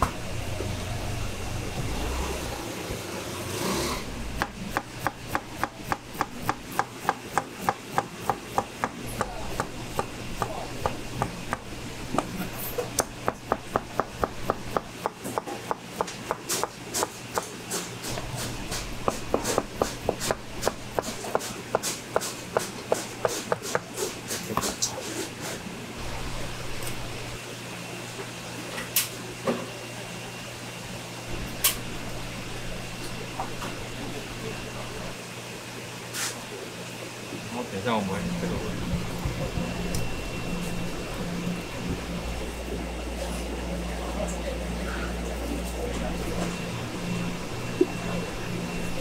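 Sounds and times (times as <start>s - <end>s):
knife chopping on cutting board: 4.4s - 24.8s.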